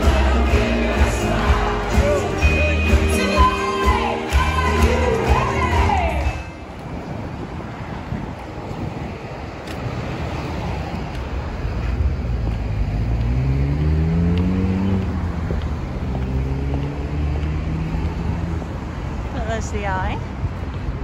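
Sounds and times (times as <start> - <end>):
low rumble of passing cars: 3.5 - 21.0
vehicle engine accelerating: 10.1 - 19.0.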